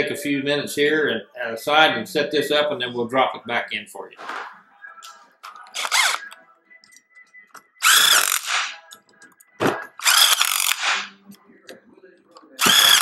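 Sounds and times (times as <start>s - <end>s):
power drill whine: 5.8s - 6.2s, 7.8s - 8.8s, 10.0s - 11.0s, 12.6s - 13.0s.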